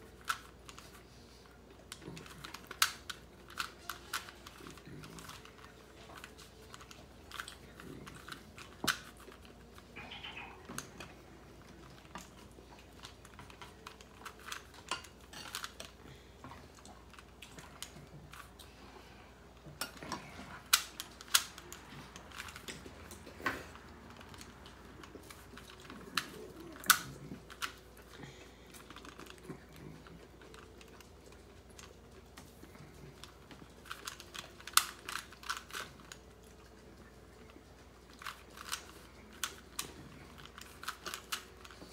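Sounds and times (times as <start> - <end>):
plastic puzzle cube clicking: 0.1 - 0.9, 1.9 - 9.6, 20.6 - 23.2, 33.1 - 36.2, 38.1 - 41.9.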